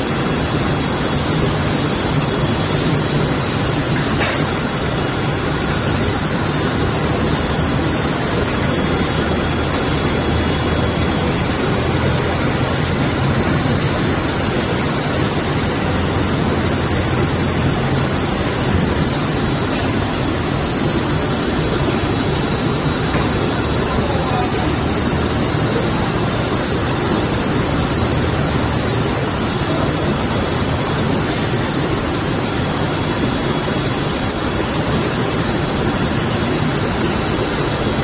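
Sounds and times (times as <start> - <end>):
textile machinery running: 0.0 - 38.0.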